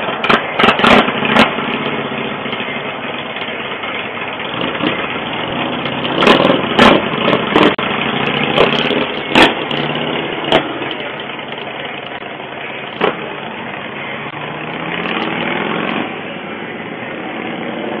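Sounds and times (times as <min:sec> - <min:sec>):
sharp cracks: 0:00.0 - 0:02.0, 0:08.5 - 0:12.2
motorcycle engines pulling away: 0:00.0 - 0:18.0.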